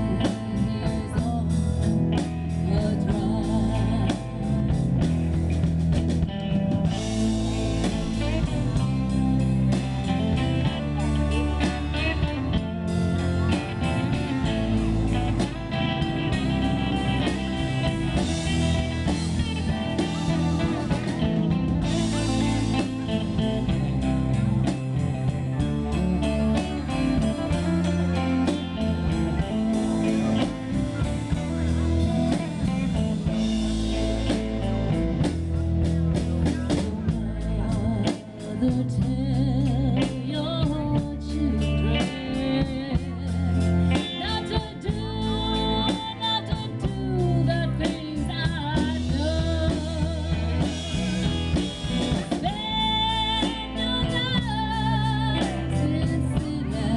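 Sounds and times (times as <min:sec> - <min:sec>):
woman singing: 0:00.0 - 0:04.9, 0:36.7 - 0:50.8, 0:52.2 - 0:56.9
electric guitar lead: 0:00.0 - 0:56.9
live band playing: 0:00.0 - 0:56.9.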